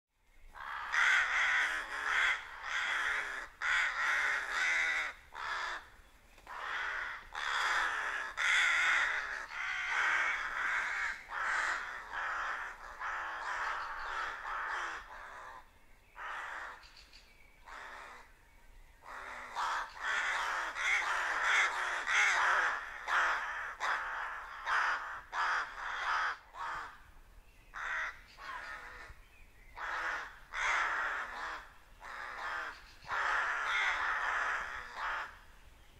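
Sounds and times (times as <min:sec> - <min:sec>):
rooks cawing: 0:00.6 - 0:15.6, 0:16.2 - 0:16.9, 0:17.7 - 0:18.3, 0:19.0 - 0:27.1, 0:27.7 - 0:29.2, 0:29.8 - 0:35.5.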